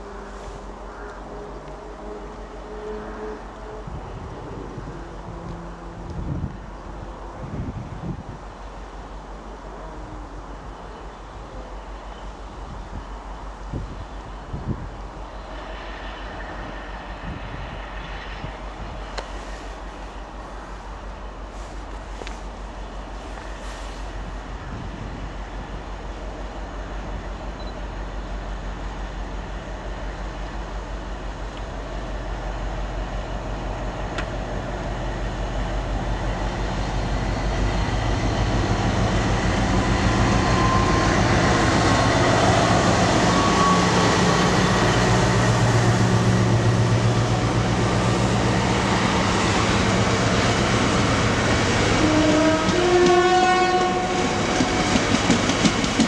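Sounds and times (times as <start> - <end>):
diesel locomotive passing: 0.0 - 56.0.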